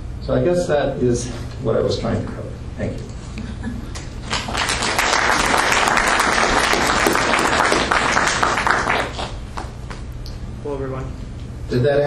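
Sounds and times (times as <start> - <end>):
audience applauding: 4.2 - 9.8.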